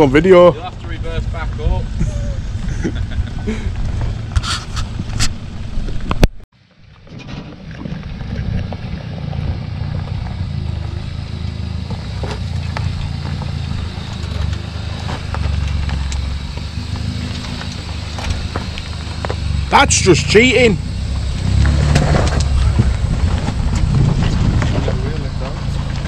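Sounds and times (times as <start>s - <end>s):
engine running at low revs: 0.0s - 26.0s
stones clicking under tyres: 3.7s - 19.8s, 20.9s - 26.0s.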